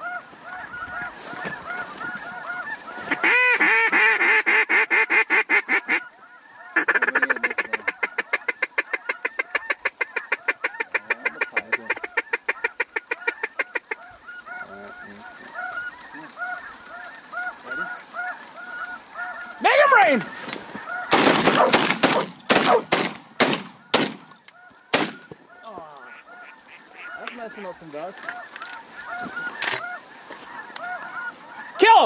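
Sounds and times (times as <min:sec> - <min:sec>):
duck call rapid notes: 0:00.0 - 0:25.3
distant waterfowl flock calling: 0:00.0 - 0:32.0.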